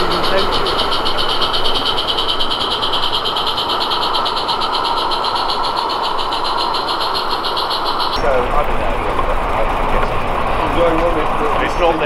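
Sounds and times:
steam locomotive exhaust hissing: 0.0s - 12.0s.

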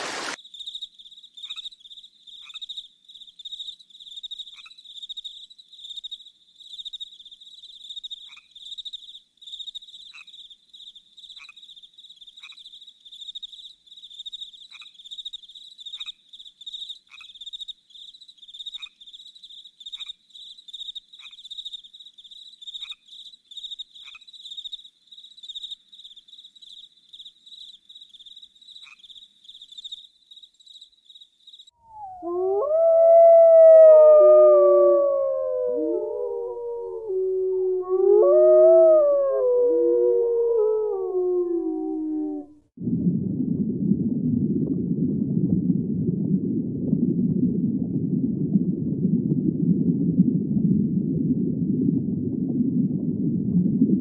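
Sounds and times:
crickets chirping: 0.2s - 42.5s.

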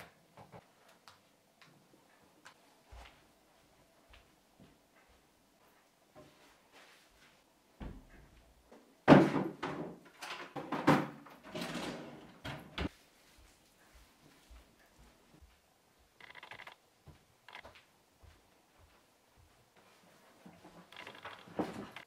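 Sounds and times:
cupboard doors opening and shutting: 7.8s - 12.9s
things clattering inside cupboard: 9.0s - 12.9s.

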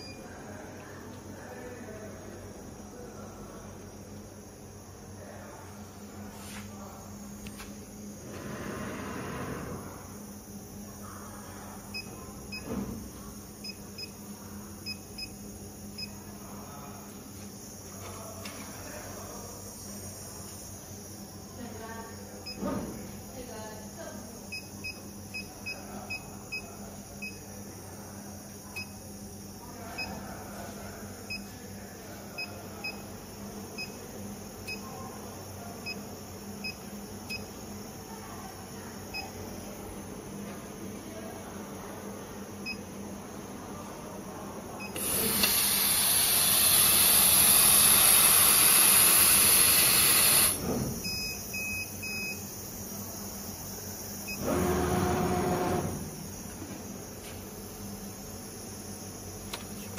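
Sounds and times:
steady air hiss: 45.0s - 50.6s.

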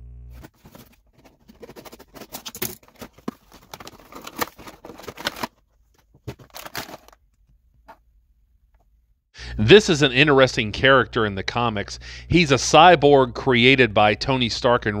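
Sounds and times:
plastic tray crinkling: 0.3s - 7.2s.

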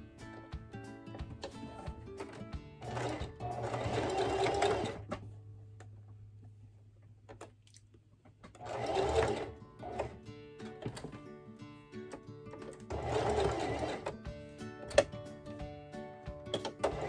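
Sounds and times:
electric sewing machine stitching: 2.2s - 5.1s, 8.6s - 10.2s, 12.6s - 14.2s, 16.6s - 17.0s.

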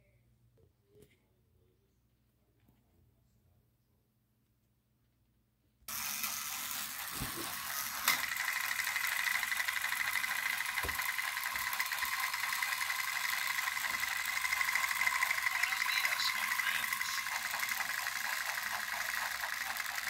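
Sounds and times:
toy train gear whine: 5.9s - 20.0s.

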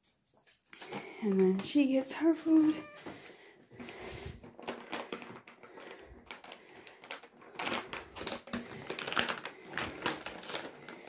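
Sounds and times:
cat food clicking and rattling: 4.4s - 11.0s.

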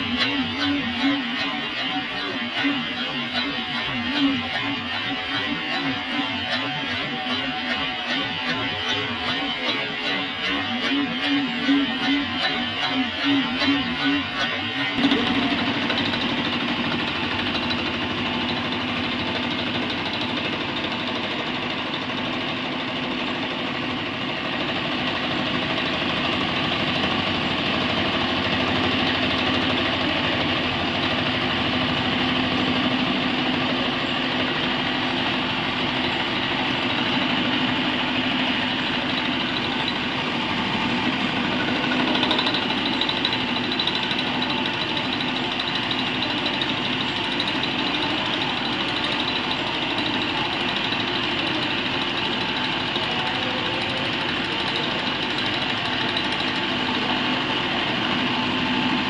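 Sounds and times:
spindle hum: 0.0s - 20.1s
milling machine cutting metal: 0.0s - 59.0s.

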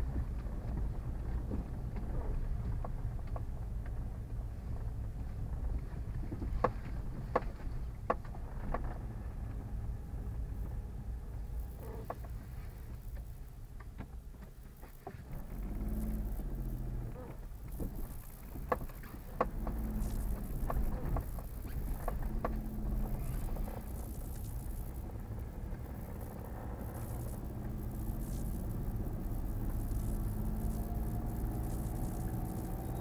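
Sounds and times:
car engine and road rumble: 0.0s - 33.0s
knocks and rattles over bumps: 12.0s - 32.9s.

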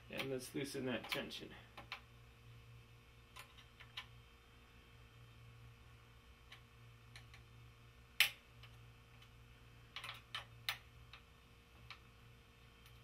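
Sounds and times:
small metallic clicks: 9.9s - 12.0s.

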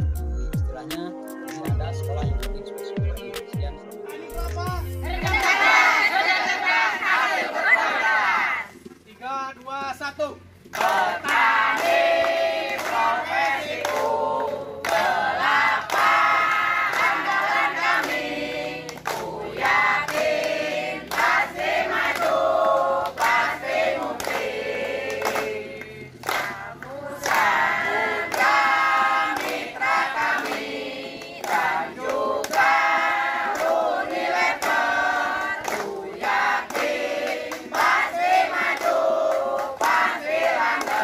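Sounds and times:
women singing together: 5.0s - 8.8s, 10.7s - 41.0s
hands clapping: 10.7s - 41.0s.

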